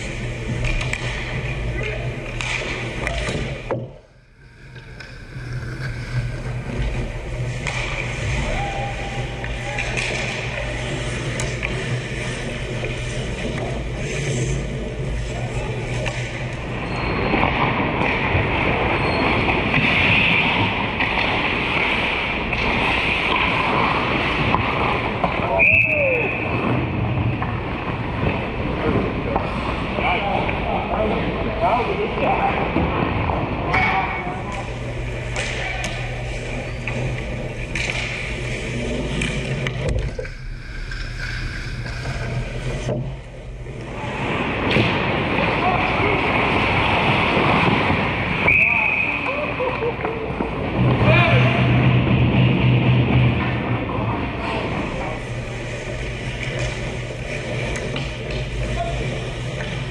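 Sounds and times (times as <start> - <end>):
sticks and puck clacking: 0.0 - 4.0, 4.6 - 16.6, 33.7 - 43.9, 44.6 - 59.9
steady low hum: 0.0 - 59.9
skate blades scraping ice: 5.3 - 26.6, 35.2 - 42.9.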